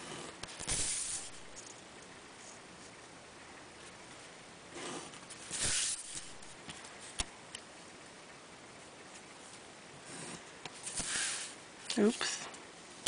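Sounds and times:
pencil scratching on paper: 4.8 - 6.5.

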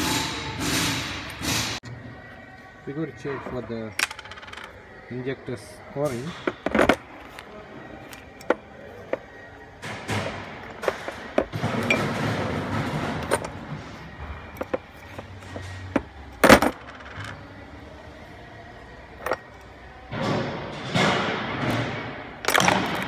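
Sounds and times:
loose metal parts clinking: 10.0 - 13.7, 19.2 - 19.7, 22.4 - 23.0
metal parts clattering: 14.6 - 17.4.

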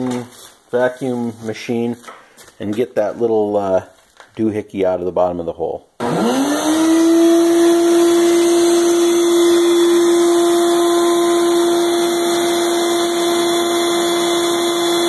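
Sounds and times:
vacuum cleaner running: 6.0 - 15.0.

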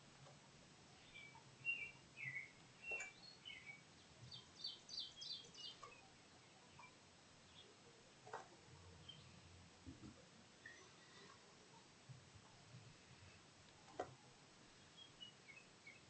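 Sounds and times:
birds chirping: 0.9 - 9.5, 13.9 - 16.0.

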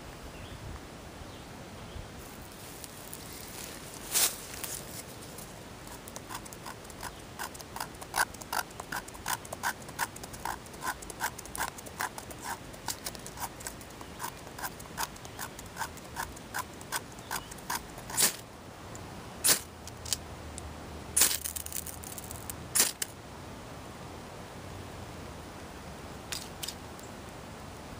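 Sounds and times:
knife scraping dry tinder: 5.9 - 18.4.

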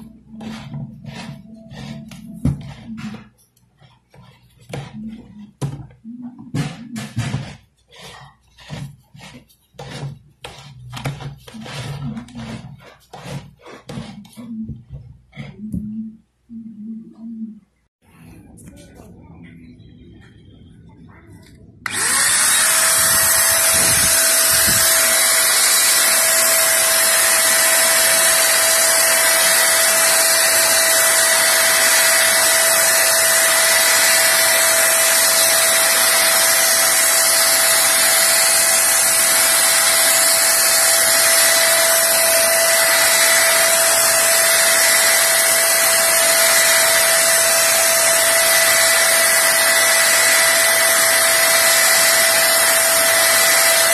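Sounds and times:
paint sprayer motor whine: 21.8 - 53.9.

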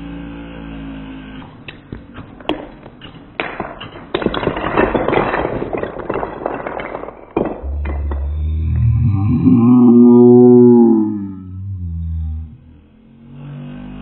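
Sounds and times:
foam darts tapping wood blocks: 1.7 - 6.2
wooden blocks clattering on floor: 1.7 - 9.7
low hum: 7.5 - 13.8.

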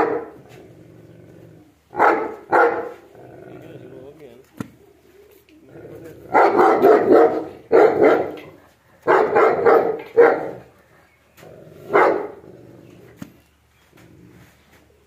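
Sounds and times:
dog barking: 0.0 - 0.4, 1.9 - 3.0, 6.3 - 10.7, 11.9 - 12.4.

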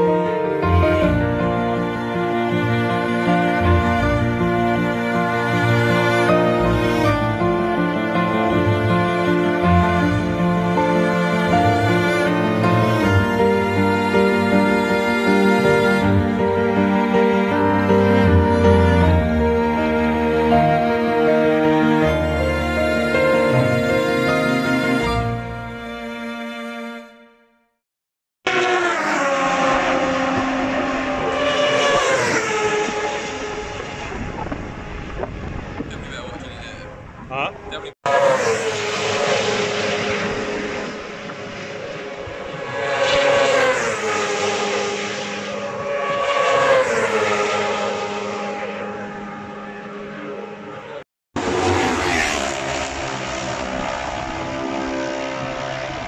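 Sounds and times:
racing motorcycle passing at speed: 28.5 - 36.1, 36.9 - 56.0.

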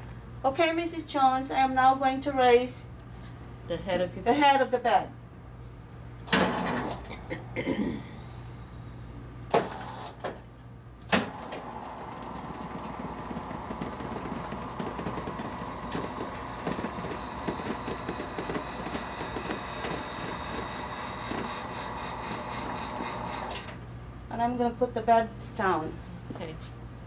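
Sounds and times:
hospital bed motor humming: 11.0 - 23.8.

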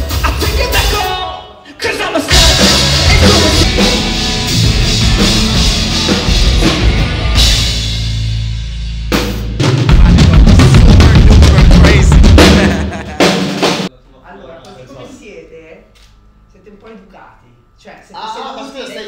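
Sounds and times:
loud rock music: 0.0 - 13.9.

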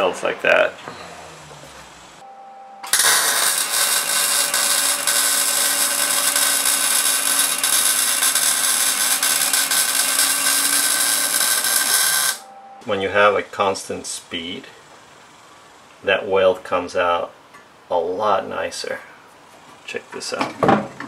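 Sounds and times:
welder hum: 2.8 - 12.5
welding arc crackling and sizzling: 2.9 - 12.4.

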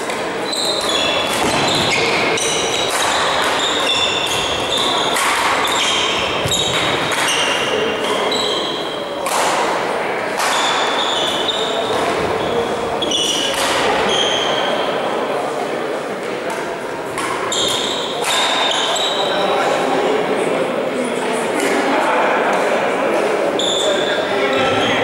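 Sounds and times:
shoes squeaking on hall floor: 0.0 - 15.5, 16.5 - 19.8, 23.4 - 25.0
racket hitting shuttlecock: 0.1 - 8.2, 9.2 - 11.0, 16.5 - 18.8.

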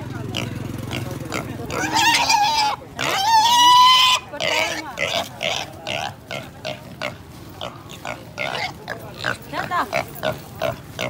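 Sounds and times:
piglet squealing: 1.7 - 5.7.

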